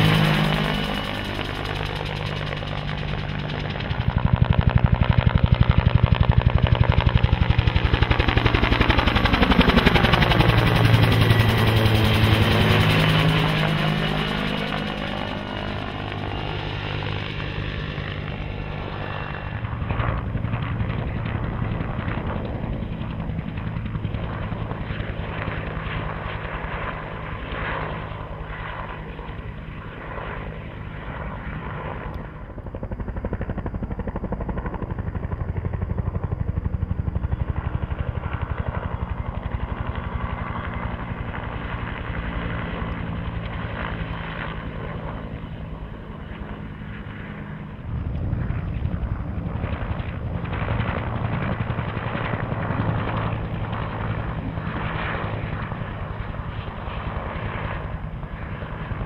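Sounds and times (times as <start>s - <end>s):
turbine engine drone: 0.0s - 7.9s
helicopter rotor beating: 0.0s - 59.0s.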